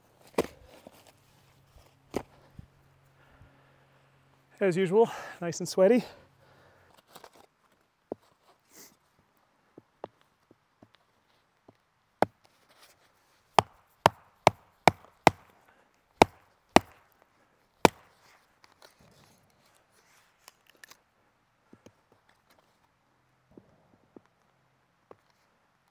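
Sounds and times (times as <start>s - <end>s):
sharp wooden knocks: 13.6s - 15.5s.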